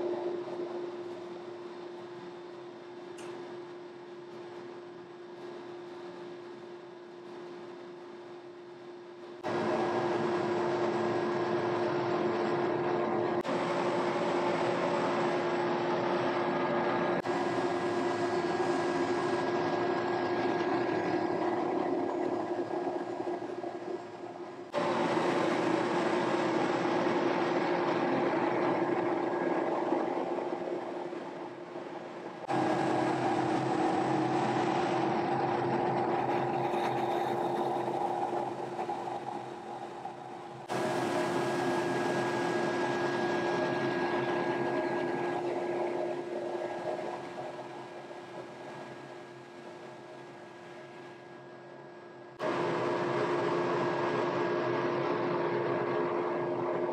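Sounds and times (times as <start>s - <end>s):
conveyor machine running: 0.0s - 56.9s
motor hum: 0.0s - 56.9s.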